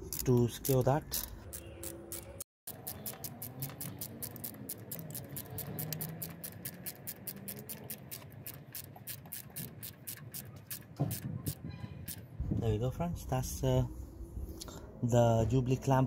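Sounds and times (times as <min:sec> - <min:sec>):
socket ratchet clicking quickly: 0:00.0 - 0:12.2.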